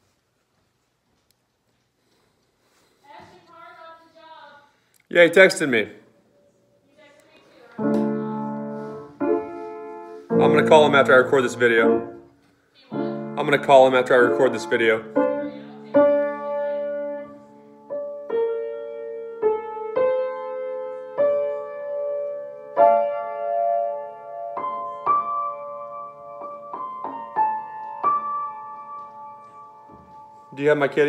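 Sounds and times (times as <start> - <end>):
slow piano chords: 7.8 - 31.0.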